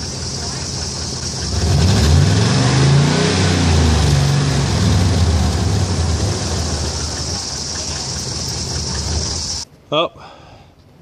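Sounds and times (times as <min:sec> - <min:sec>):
coolant spraying: 0:00.0 - 0:09.6
truck engine revving: 0:00.0 - 0:09.6.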